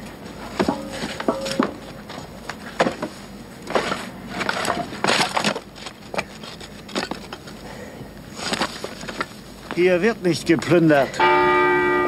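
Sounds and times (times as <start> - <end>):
wooden rubble knocking and cracking: 0.5 - 3.1, 3.7 - 7.6.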